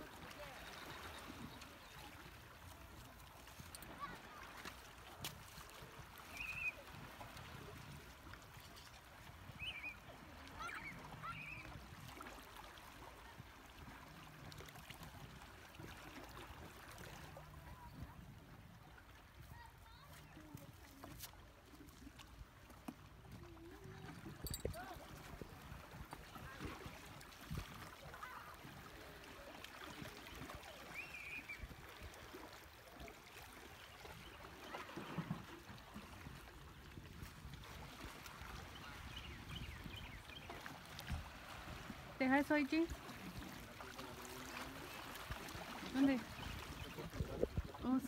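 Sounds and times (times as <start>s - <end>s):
water trickling and lapping: 0.0s - 48.0s
faint warbling bird call: 6.3s - 6.8s.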